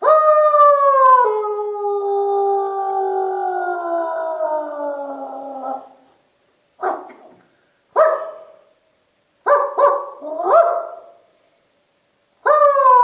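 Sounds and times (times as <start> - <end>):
dog barking: 6.8 - 7.3, 8.0 - 8.7, 9.4 - 11.2.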